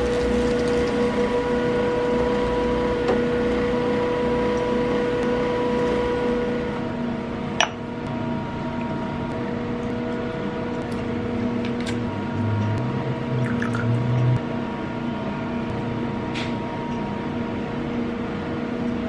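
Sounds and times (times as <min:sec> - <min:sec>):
kitchen appliance humming: 0:00.0 - 0:06.9, 0:08.0 - 0:14.4.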